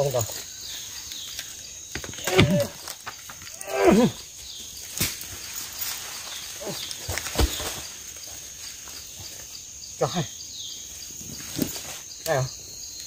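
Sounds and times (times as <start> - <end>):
men groaning with effort: 2.2 - 2.8, 3.5 - 4.2.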